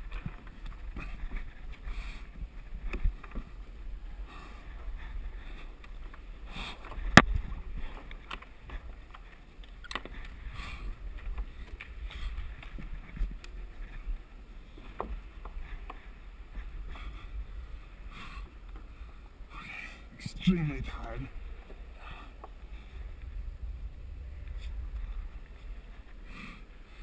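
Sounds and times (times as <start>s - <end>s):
clicks and scuffs of climbing gear: 0.0s - 3.6s, 4.3s - 17.3s
wind rumble on microphone: 0.0s - 27.0s.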